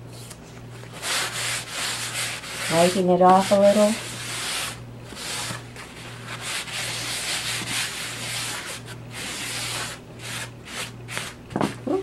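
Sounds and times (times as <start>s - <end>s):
rag rubbing on canvas: 0.9s - 11.8s.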